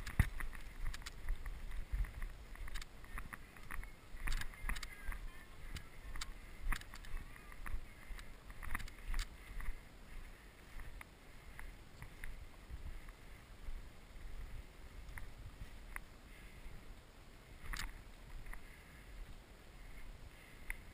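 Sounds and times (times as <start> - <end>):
sharp clicks: 0.0 - 9.3, 17.6 - 18.6
dry grass rustling: 0.0 - 20.9.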